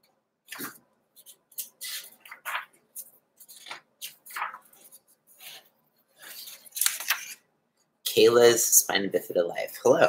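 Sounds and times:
paper rustling: 0.5 - 7.4.

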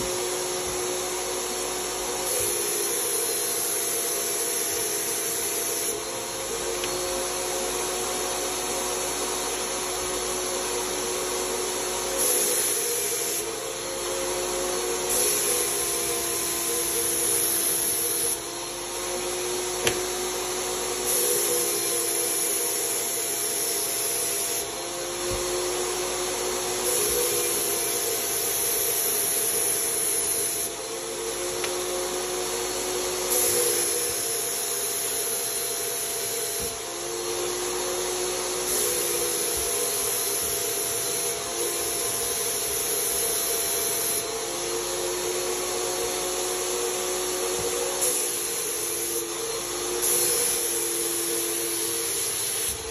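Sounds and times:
turbine paint sprayer whine: 0.0 - 52.9
hiss of spray gun air: 0.1 - 6.0, 10.7 - 13.6, 14.9 - 18.4, 20.8 - 24.7, 25.9 - 30.8, 32.3 - 44.3, 45.4 - 52.9.

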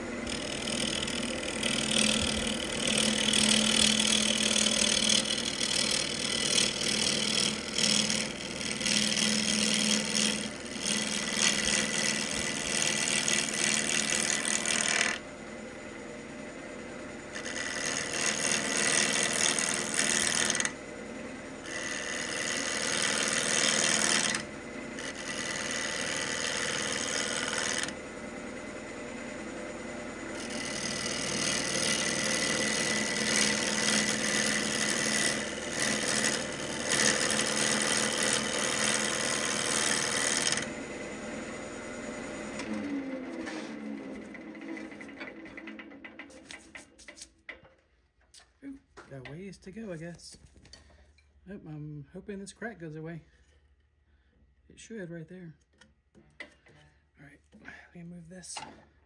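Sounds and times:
gouge scraping wood on lathe: 0.0 - 15.4, 16.0 - 47.6
lathe humming: 0.0 - 47.6.

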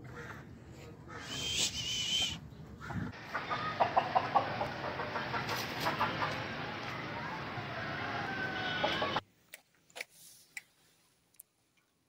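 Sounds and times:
chickens clucking: 2.8 - 9.2.

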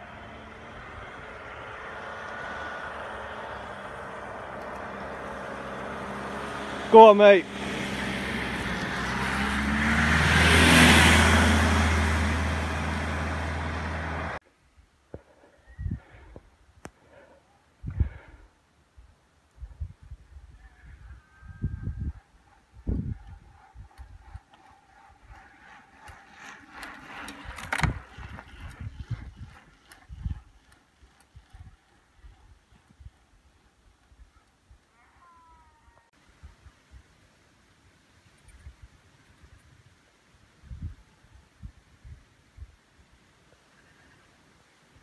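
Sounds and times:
car passing by: 0.0 - 14.4
wind buffeting microphone: 17.8 - 18.4, 19.6 - 34.4.

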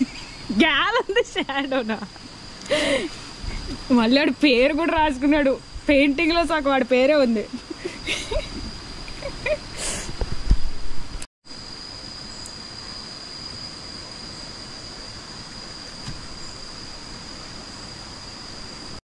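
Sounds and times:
insects buzzing: 0.0 - 10.5, 11.5 - 19.0
soft outdoor hiss: 0.0 - 19.0.

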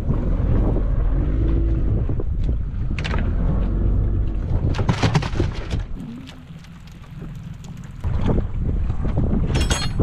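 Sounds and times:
boat engine rumble: 0.0 - 10.0
wind on microphone: 0.0 - 10.0
sharp knocks and rattles: 4.6 - 6.0.

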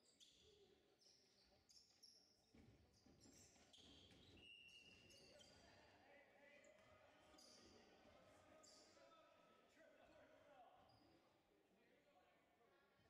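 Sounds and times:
sneakers squeaking on floor: 2.5 - 5.7.

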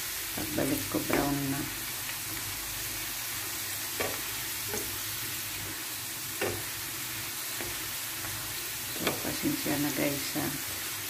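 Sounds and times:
fries sizzling in hot oil: 0.0 - 11.0
spatula knocking against pan: 4.0 - 5.0, 6.4 - 6.7.

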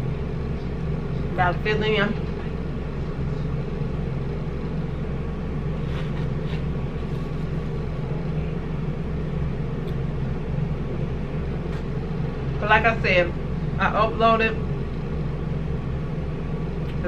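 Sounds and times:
steady low hum: 0.0 - 17.0
faint scraping mouth sounds: 5.8 - 7.4.

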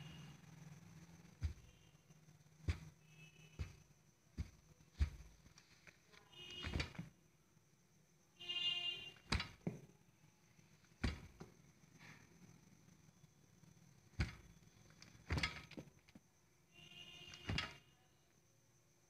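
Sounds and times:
faint high whine: 0.0 - 19.0
sharp knocks and clicks: 1.0 - 7.2, 9.2 - 9.9, 10.9 - 11.6, 14.1 - 16.3, 17.3 - 17.8.

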